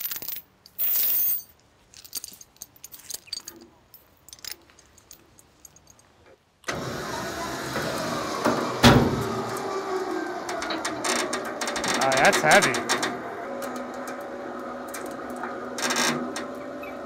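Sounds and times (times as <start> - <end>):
metal chain clinking: 0.0 - 6.1
winch motor running: 6.7 - 17.0
loud clunk: 7.7 - 9.6.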